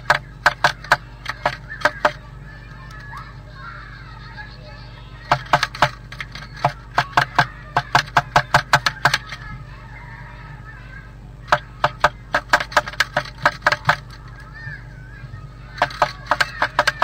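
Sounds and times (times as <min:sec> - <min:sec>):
bird pecking on wood: 0:00.0 - 0:02.3, 0:05.3 - 0:09.5, 0:11.5 - 0:14.5, 0:15.7 - 0:17.0.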